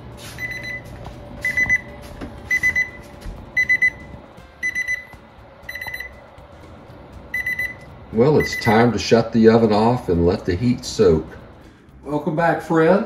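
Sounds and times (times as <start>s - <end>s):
thermometer alarm high beeps: 0.4s - 6.2s, 7.3s - 9.0s.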